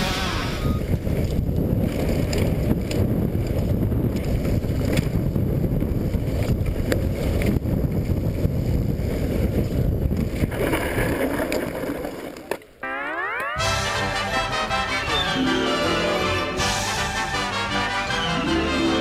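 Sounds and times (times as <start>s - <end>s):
wind buffeting microphone: 0.0s - 12.3s
bike clicks and rattles: 0.9s - 12.8s.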